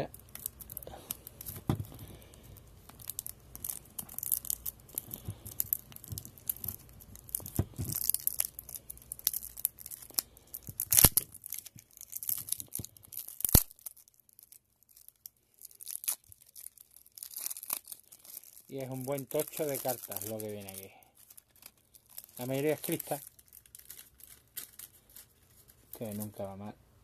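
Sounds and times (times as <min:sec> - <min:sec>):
plastic shrink wrap crinkling: 0:00.0 - 0:26.7
plastic wrap sharp snaps: 0:02.8 - 0:20.9.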